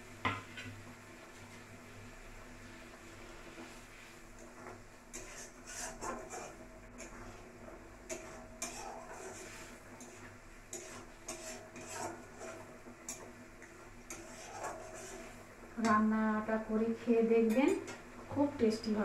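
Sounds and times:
spatula scraping metal pan: 4.6s - 13.4s, 14.0s - 15.4s.

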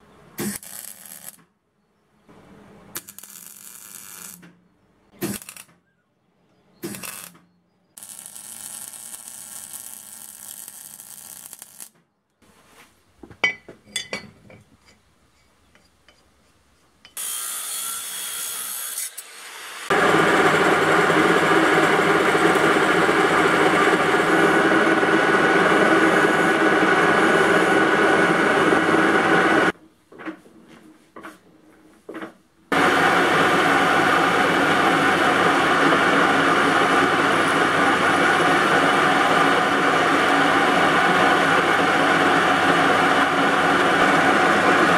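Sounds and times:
welding crackle: 0.4s - 1.4s, 3.0s - 4.4s, 5.2s - 5.8s, 6.8s - 7.4s, 8.0s - 12.0s
metal lathe whining: 19.9s - 29.7s, 32.8s - 44.9s.

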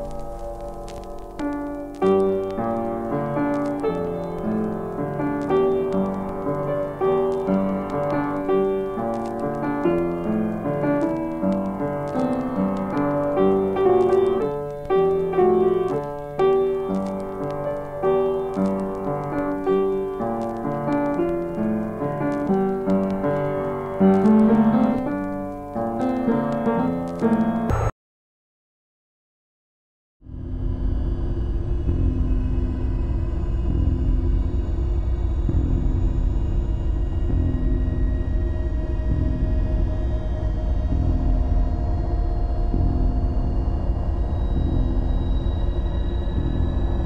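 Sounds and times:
solo piano music: 0.0s - 27.8s.

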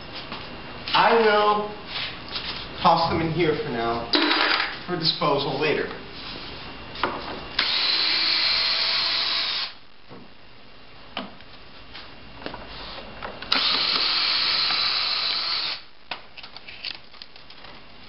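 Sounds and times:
cordless drill spinning screws: 7.6s - 9.8s, 13.5s - 15.8s.

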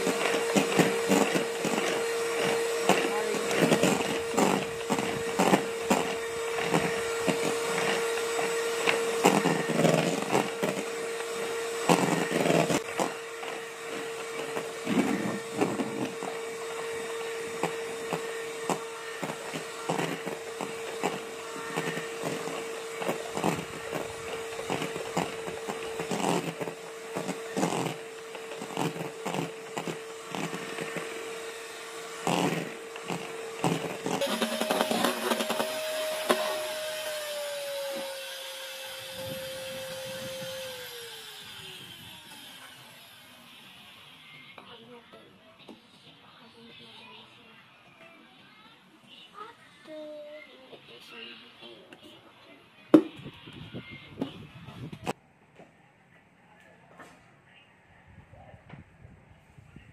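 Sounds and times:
beaters scraping metal bowl: 0.0s - 42.8s
electric hand mixer whine: 0.0s - 44.8s.

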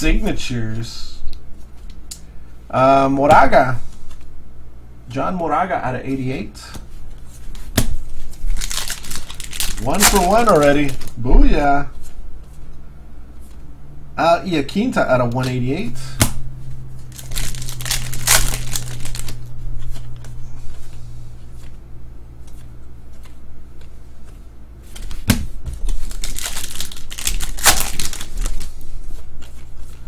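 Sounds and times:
wrapper tearing and crinkling: 8.4s - 11.2s, 17.1s - 19.4s, 25.9s - 28.8s
trading cards rubbing and sliding: 16.6s - 21.8s.

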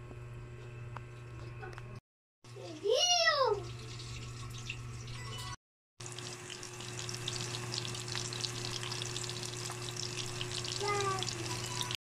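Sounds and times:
meat sizzling in a pan: 6.0s - 12.0s.

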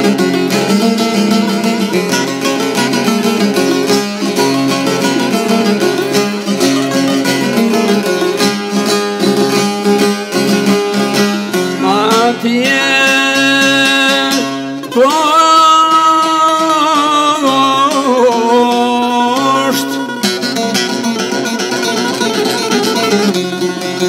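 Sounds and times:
plucked long-necked lute: 0.0s - 24.0s
man singing held wavering notes: 11.8s - 20.2s.

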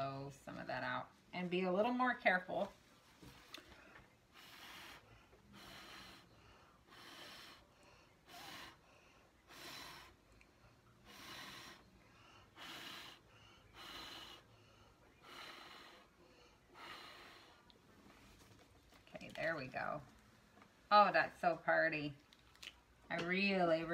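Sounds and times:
person blowing breath puffs: 3.4s - 10.4s, 11.0s - 18.3s.

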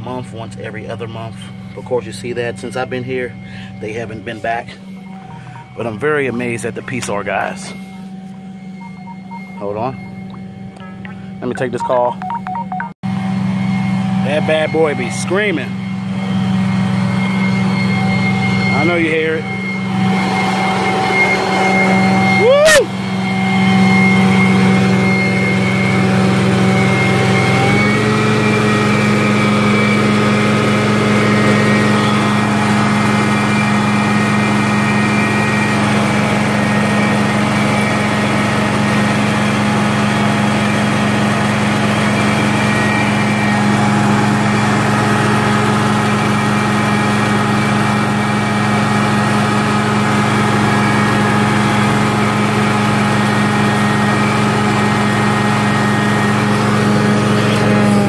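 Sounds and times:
carpet cleaning machine running: 0.0s - 12.1s, 13.1s - 58.0s
screaming: 22.4s - 22.9s.

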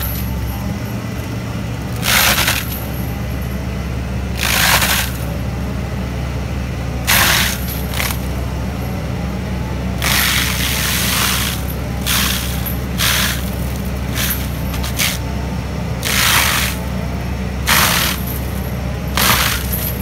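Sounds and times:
diesel engine running: 0.0s - 20.0s
mulcher grinding wood: 0.0s - 20.0s.

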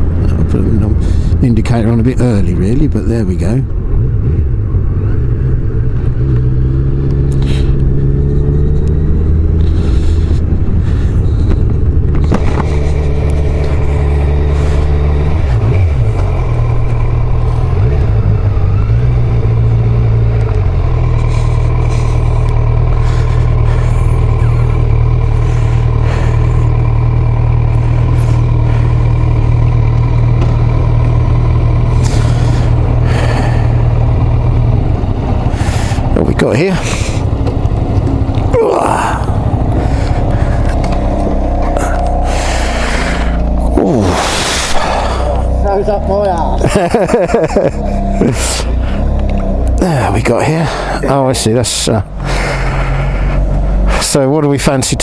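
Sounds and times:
motorcycle engine: 0.0s - 55.0s.

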